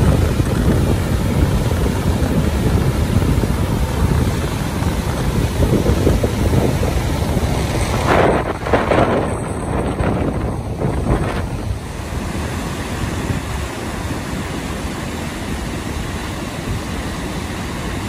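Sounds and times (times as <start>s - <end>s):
waterfall roaring: 0.0s - 18.0s
wind buffeting microphone: 0.0s - 18.0s.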